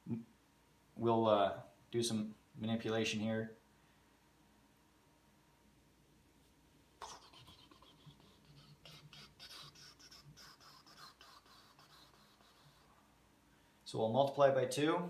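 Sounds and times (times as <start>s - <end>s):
marker scratching on whiteboard: 7.0s - 13.0s.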